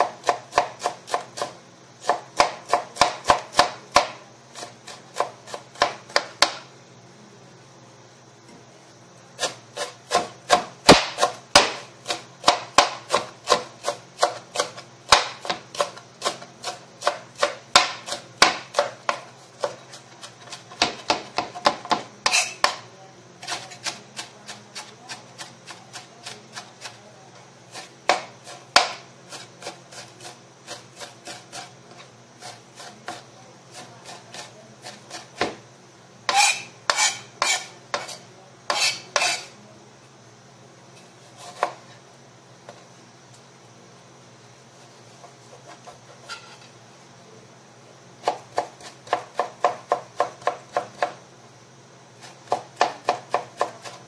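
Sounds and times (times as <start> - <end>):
knife chopping on plastic board: 0.0 - 6.6, 9.4 - 22.8, 27.7 - 35.6, 36.3 - 39.5, 41.4 - 41.8, 48.2 - 51.2, 52.2 - 54.0.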